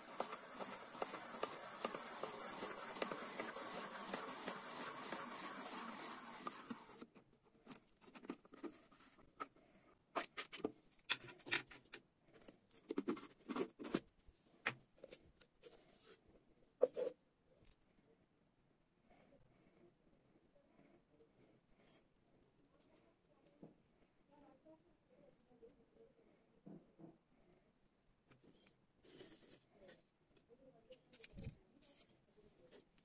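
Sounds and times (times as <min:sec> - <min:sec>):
potato crunching through cutter blade: 0:00.0 - 0:07.0.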